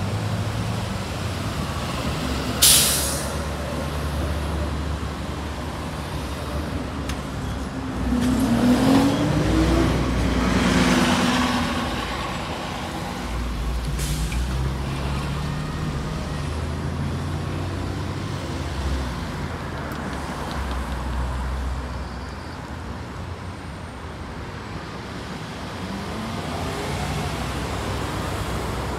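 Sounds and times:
bus engine pulling away: 0:00.0 - 0:28.9
road traffic: 0:00.0 - 0:28.9
vehicle accelerating: 0:07.9 - 0:19.2.

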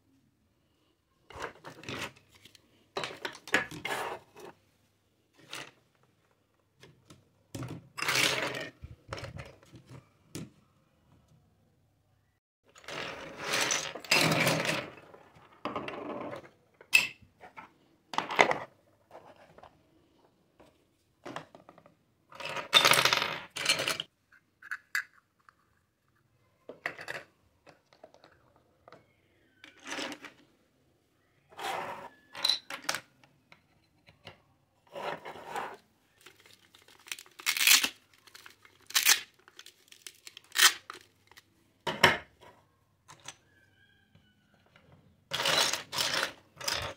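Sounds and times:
plastic toys clicking and clattering: 0:01.3 - 0:04.6, 0:21.3 - 0:30.5, 0:36.2 - 0:41.5, 0:44.7 - 0:46.9.

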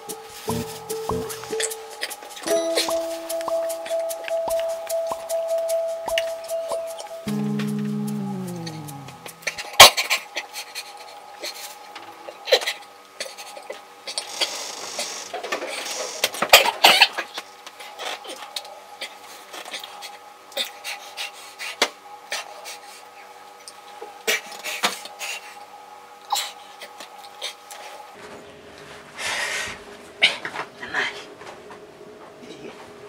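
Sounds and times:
faint steady hum: 0:00.0 - 0:09.8.

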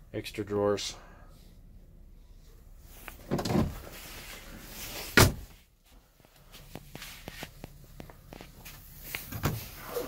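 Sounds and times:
drawer shutting with a bang: 0:05.2 - 0:05.5.

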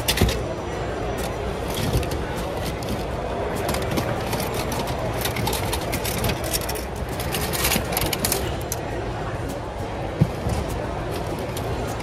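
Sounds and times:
plastic and metal toys clinking: 0:00.0 - 0:09.0.

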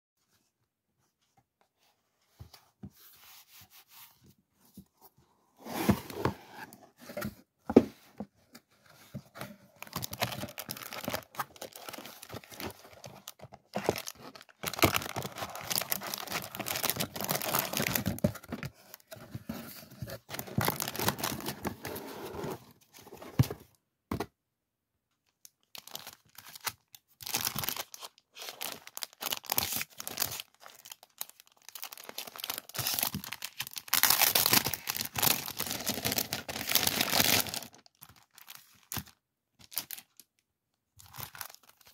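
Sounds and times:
plastic packaging crinkling: 0:09.8 - 0:18.6, 0:25.6 - 0:40.3.

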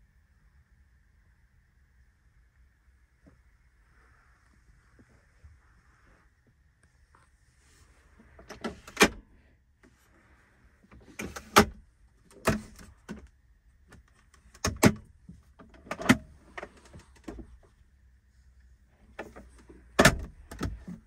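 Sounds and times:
faint handling rustle: 0:03.2 - 0:08.9.

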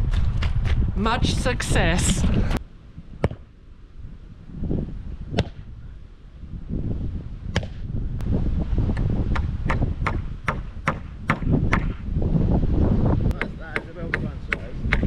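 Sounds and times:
wind rumbling on microphone: 0:00.0 - 0:15.0
hammer knocking wooden fence: 0:13.4 - 0:15.0.

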